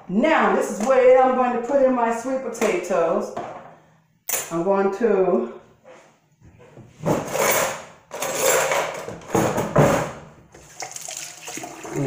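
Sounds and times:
cookware scraping on counter: 7.0 - 9.2.

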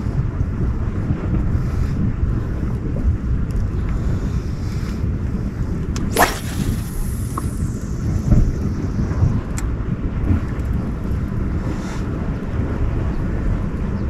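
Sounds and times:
wind buffeting microphone: 0.0 - 14.0
sharp click of reel: 6.0 - 7.9
fishing line paying out from reel: 6.1 - 8.6.

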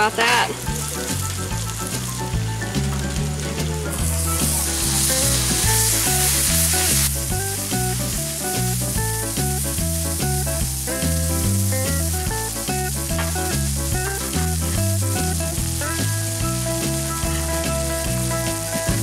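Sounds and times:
background music with bass line: 0.0 - 19.0
food sizzling on griddle: 0.0 - 19.0.

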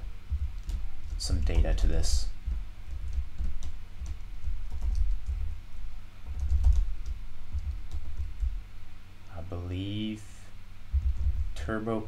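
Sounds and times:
typing on computer keyboard: 2.9 - 5.4, 6.3 - 8.5.

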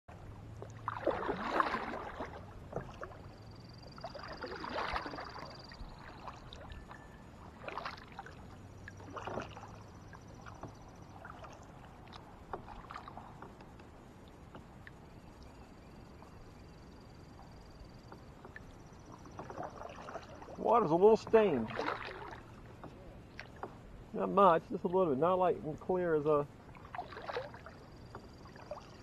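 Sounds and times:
paddle splashing in water: 0.1 - 29.0.

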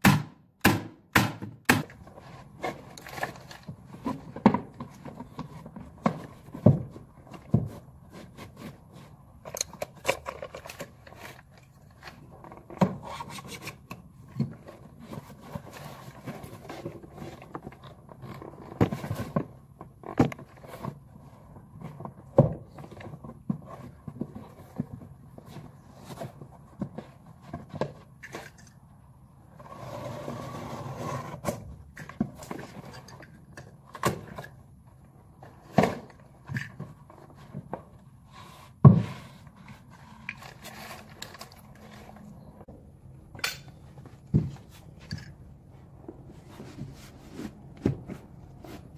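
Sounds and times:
carpet tiles scraping on stairs: 45.9 - 48.9.

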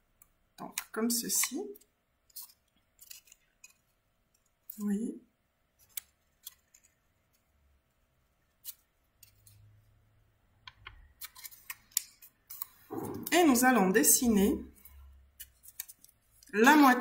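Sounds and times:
paper crinkling: 2.3 - 4.0, 15.4 - 16.6.

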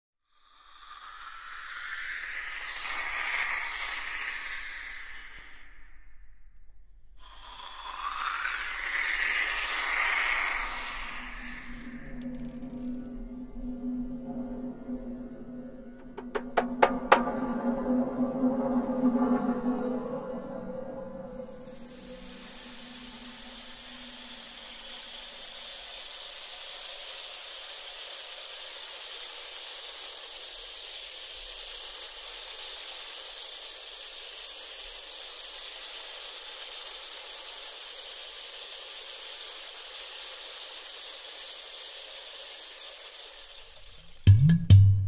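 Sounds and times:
steady hiss: 0.3 - 17.3, 21.2 - 44.4
loud music with drumbeat: 44.3 - 45.0.

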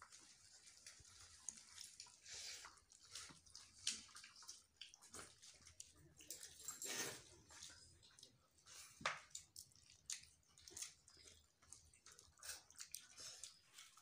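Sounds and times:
soft chewing: 0.0 - 14.0
fingers squishing food: 7.9 - 14.0.

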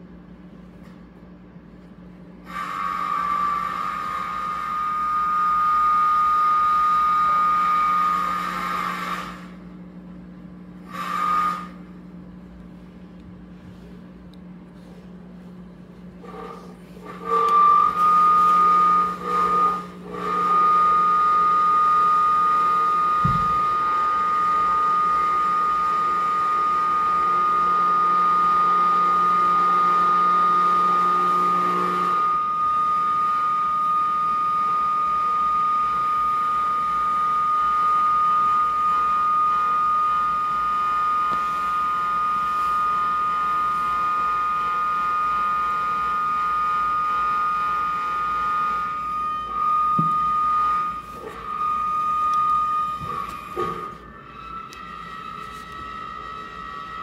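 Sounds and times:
low electronic hum: 11.7 - 29.6.

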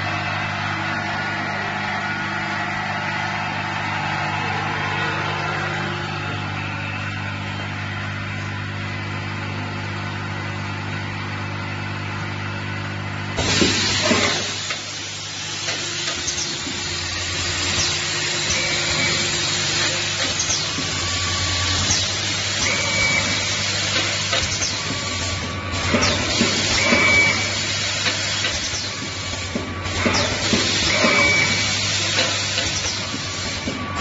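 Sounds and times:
vibratory feeder humming: 0.0 - 34.0
compressed air hiss: 13.4 - 34.0.

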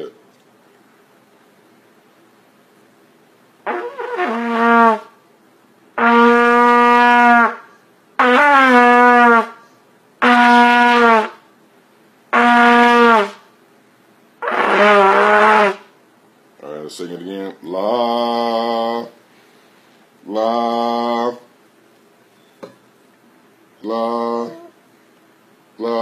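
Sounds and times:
child blowing trumpet notes: 3.6 - 5.2, 6.0 - 11.4, 12.3 - 13.5, 14.4 - 15.9.

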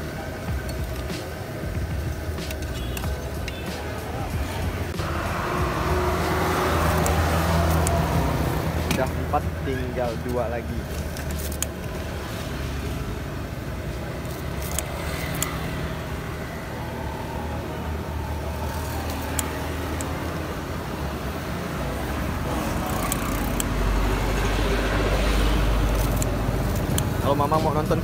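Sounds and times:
traffic rumble: 0.0 - 28.0
vehicle rumble: 0.0 - 28.0
scissors snipping: 6.7 - 9.2, 14.2 - 15.7, 22.7 - 24.0, 25.7 - 27.2.

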